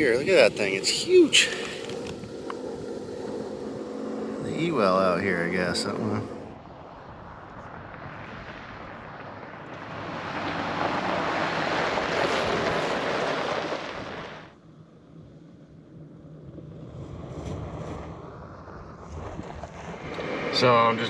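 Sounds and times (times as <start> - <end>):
faint low engine hum: 0.0 - 10.5
vehicle driving past on gravel: 0.0 - 14.5, 16.2 - 21.0.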